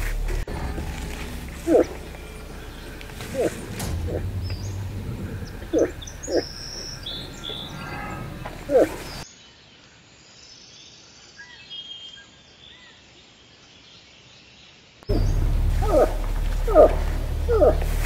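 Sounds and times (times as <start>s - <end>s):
moose calls: 0.0s - 9.2s, 15.1s - 18.0s
songbirds singing: 0.0s - 18.0s.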